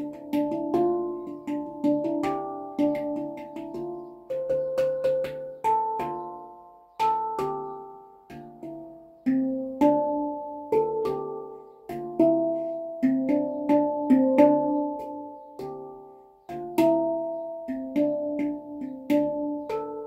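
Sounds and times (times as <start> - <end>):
handpan melody: 0.0 - 20.0.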